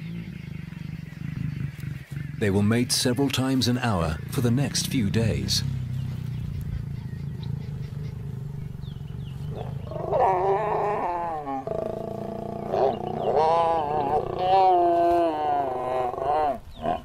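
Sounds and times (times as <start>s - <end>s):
lions growling: 5.6s - 17.0s
lions snarling: 5.6s - 17.0s.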